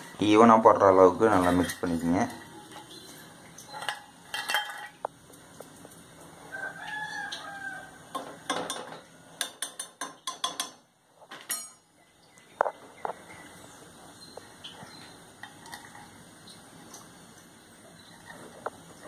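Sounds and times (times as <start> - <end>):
steel utensils knocking and clicking: 3.6 - 5.1, 8.1 - 11.9
rooster crowing: 6.4 - 8.4.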